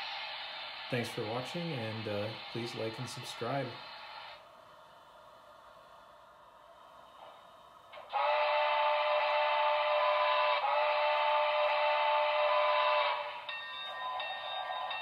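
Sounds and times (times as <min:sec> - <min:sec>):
model locomotive running sound: 0:00.0 - 0:04.4, 0:07.2 - 0:15.0
model train steam whistle: 0:08.0 - 0:15.0.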